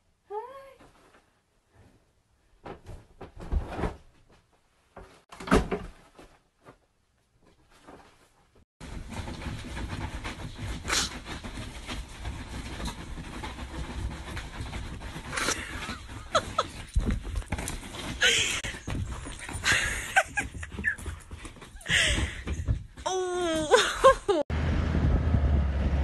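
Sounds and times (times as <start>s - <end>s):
dog thumping and rustling: 2.6s - 6.8s, 7.4s - 23.1s.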